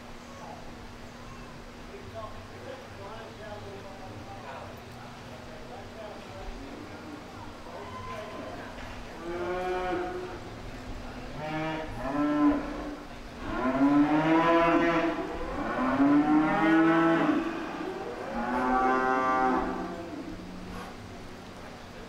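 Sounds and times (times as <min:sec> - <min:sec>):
cattle mooing: 0:09.2 - 0:10.5, 0:11.3 - 0:20.7.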